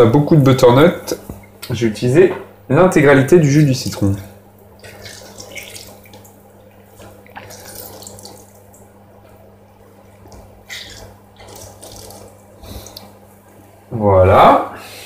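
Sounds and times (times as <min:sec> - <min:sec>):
juice dripping into bowl: 0:03.7 - 0:13.6
wet squelches from fruit: 0:04.8 - 0:13.6.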